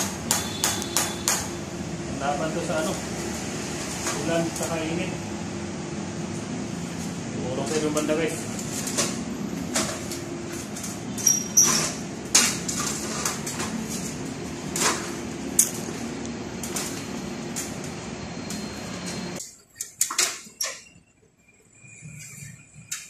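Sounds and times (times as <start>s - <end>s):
metal stepladder clanking: 8.8s - 15.9s.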